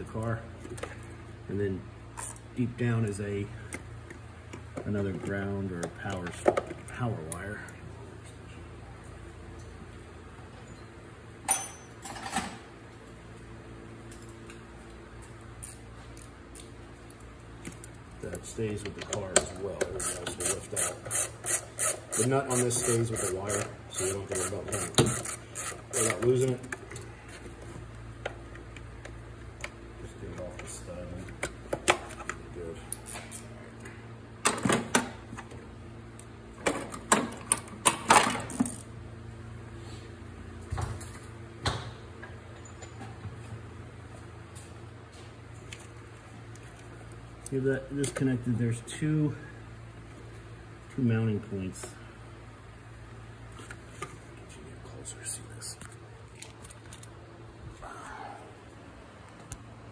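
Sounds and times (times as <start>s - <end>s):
low steady hum: 0.0s - 59.9s
clicks and clatters of car parts: 3.7s - 7.4s, 24.8s - 32.4s, 36.6s - 38.9s.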